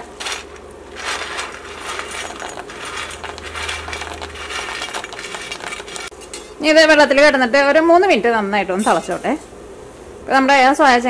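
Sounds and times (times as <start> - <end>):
dry chunks rattling into pan: 0.0 - 6.2
boiling water bubbling: 0.7 - 6.1.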